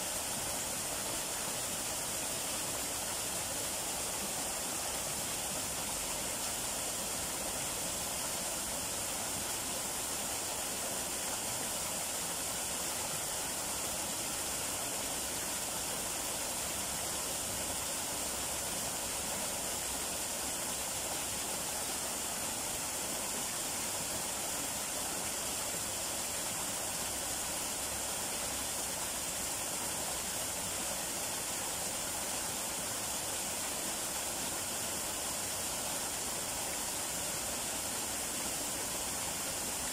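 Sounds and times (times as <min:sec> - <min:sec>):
waterfall splashing into pool: 0:00.0 - 0:39.9.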